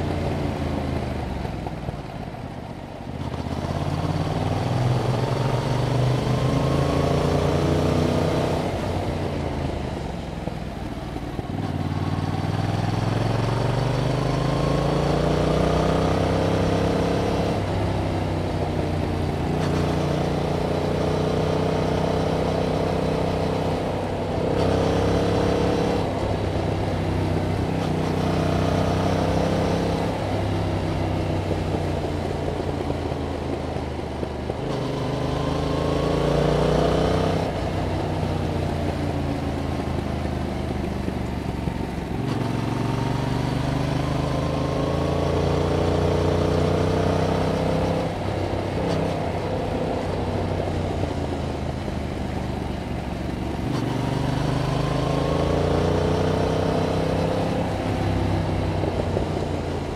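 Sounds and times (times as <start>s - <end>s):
motorcycle engine revving: 3.2s - 9.8s, 11.2s - 59.9s.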